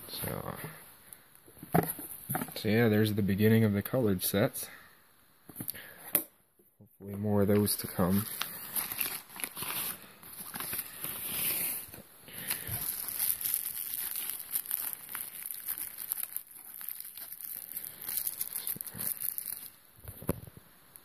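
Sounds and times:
plastic bags and bubble wrap crinkling: 7.5s - 20.5s.

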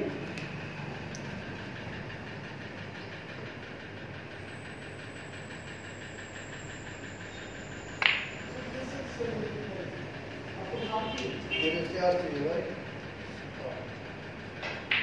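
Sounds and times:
room background noise: 0.0s - 15.0s
faint high whine: 4.4s - 9.3s.

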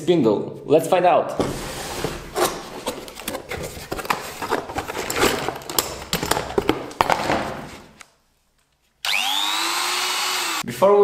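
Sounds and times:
cardboard rustling: 1.4s - 8.0s.

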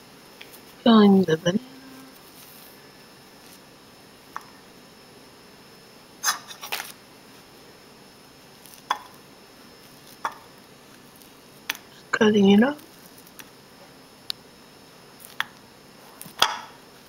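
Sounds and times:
rustling scrape: 2.2s - 2.8s.

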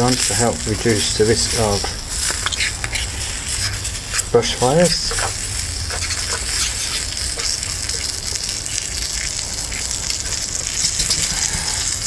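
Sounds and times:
bacon sizzling in a pan: 0.0s - 12.0s
wood fire low rumble: 0.0s - 12.0s.

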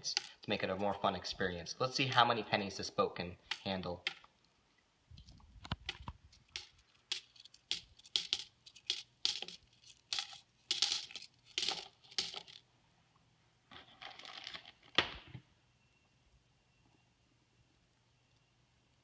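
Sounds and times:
coins clinking onto pile: 6.6s - 12.6s.

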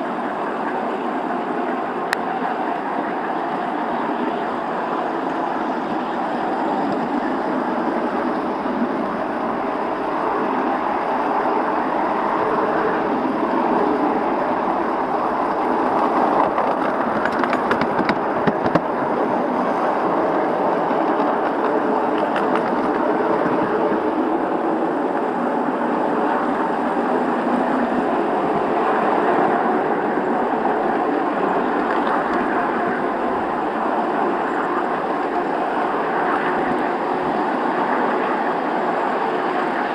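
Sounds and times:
train wheels running on rail: 0.0s - 39.9s.

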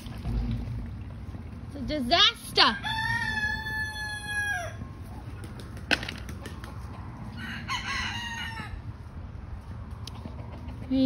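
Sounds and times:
rooster crowing: 2.8s - 4.9s, 7.3s - 8.9s.

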